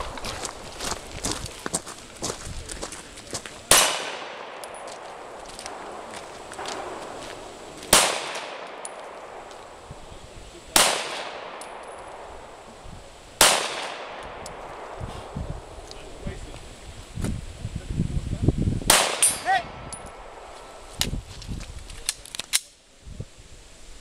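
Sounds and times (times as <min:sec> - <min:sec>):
gunshots with echo: 0:03.7 - 0:09.9, 0:10.7 - 0:12.6, 0:13.4 - 0:15.3, 0:18.9 - 0:20.4.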